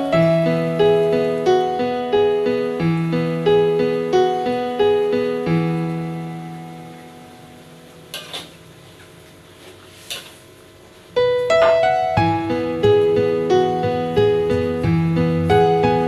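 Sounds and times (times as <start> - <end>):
soft piano music: 0.0 - 8.3, 11.1 - 16.0
metal spatula scraping wok: 8.1 - 8.6.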